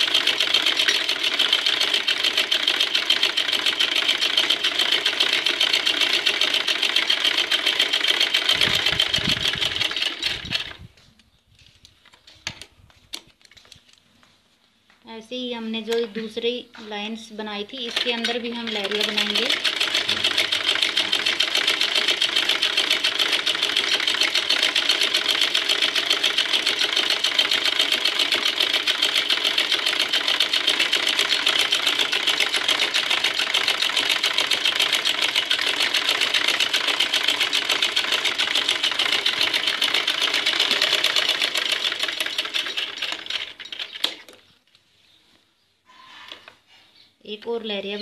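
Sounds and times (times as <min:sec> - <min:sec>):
sewing machine running: 0:00.0 - 0:10.9, 0:17.8 - 0:44.3.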